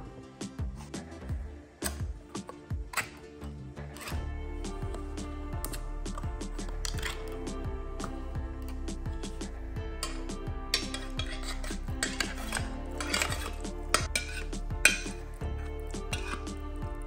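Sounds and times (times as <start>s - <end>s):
soft background music: 0.0s - 17.0s
metal can scraping and clinking: 5.7s - 7.4s, 10.0s - 15.2s, 16.0s - 16.6s.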